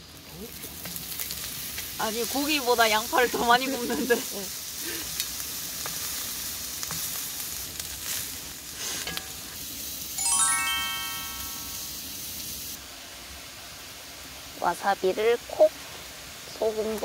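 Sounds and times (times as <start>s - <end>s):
meat and onions sizzling: 0.0s - 17.0s
bright chime: 10.2s - 12.0s.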